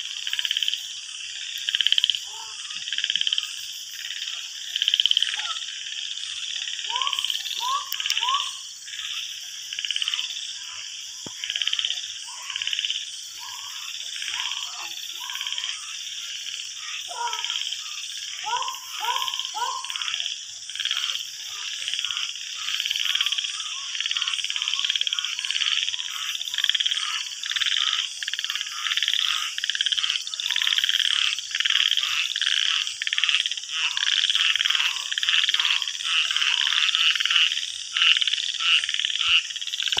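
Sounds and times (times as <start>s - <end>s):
frogs calling: 0.0s - 40.0s.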